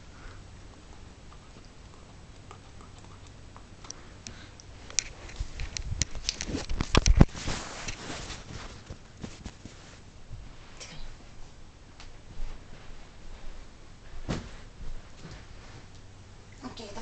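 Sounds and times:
camera handling noise: 4.9 - 8.0.

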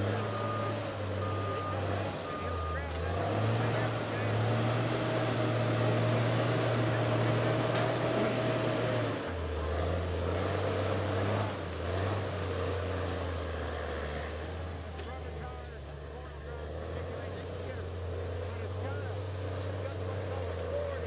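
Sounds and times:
diesel engine under load: 0.0 - 21.0
logs dragging: 0.0 - 21.0.

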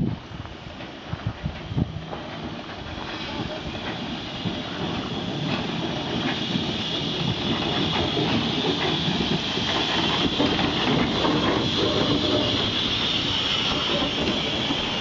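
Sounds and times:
steam locomotive drawing in: 0.0 - 15.0
wheels clicking over rail joints: 0.8 - 15.0.

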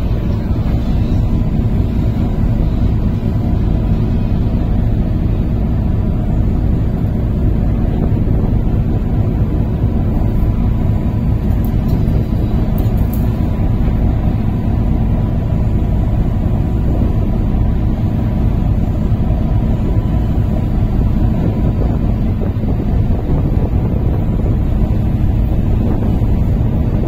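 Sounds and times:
ferry engine rumble: 0.0 - 27.0
wind on microphone: 0.0 - 27.0.

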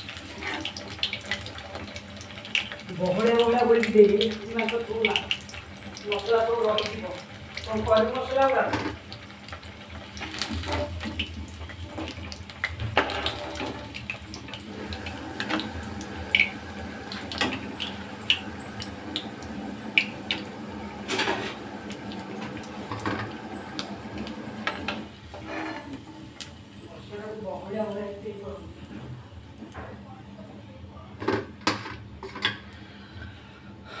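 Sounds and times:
oil sizzling deep-frying: 0.0 - 30.5
metal spatula scraping pan: 24.6 - 26.0.

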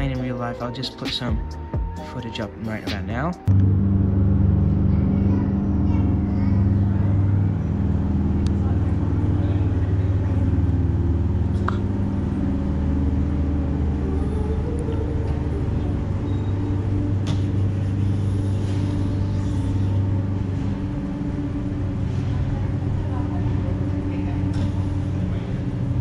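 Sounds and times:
low mechanical drone: 0.0 - 26.0.

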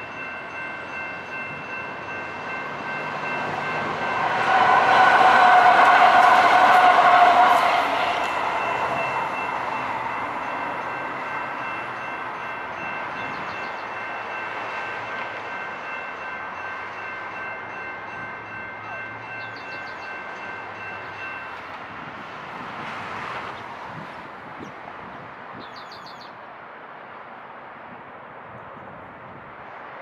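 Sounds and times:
electronic crossing bell ringing: 0.0 - 21.6
light rail train moving: 0.0 - 30.0.

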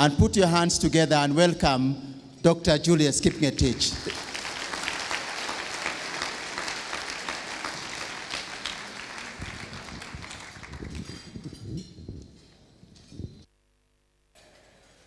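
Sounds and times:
audience applauding: 3.2 - 11.4.

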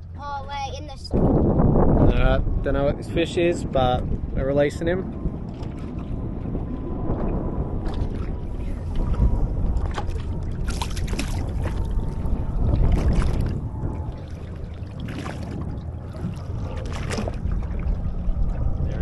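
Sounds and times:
wind rumbling on microphone: 0.0 - 19.0
water lapping against boat: 5.0 - 19.0
water slapping against hull: 5.0 - 19.0.

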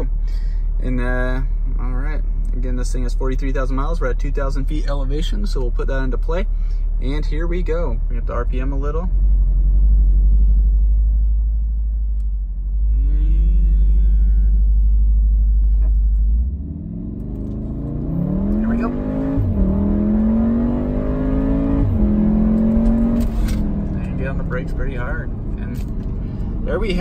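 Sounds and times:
car engine droning and revving: 0.0 - 27.0
gear upshifts: 15.5 - 27.0.

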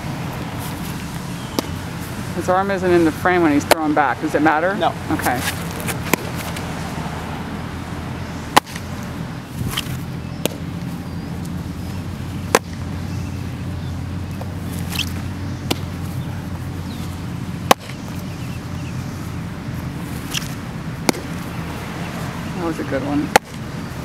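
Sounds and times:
low outdoor rumble: 0.0 - 24.0
baseball popping into leather mitt: 0.8 - 1.8, 5.4 - 6.7, 8.5 - 9.1, 9.7 - 10.8, 12.4 - 12.9, 14.3 - 16.0, 17.7 - 18.2, 20.2 - 21.5, 23.3 - 23.6.

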